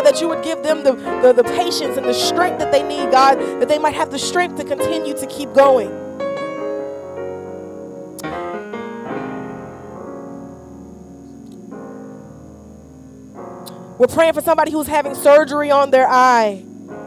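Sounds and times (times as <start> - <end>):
soft electric piano chords: 0.0 - 17.0.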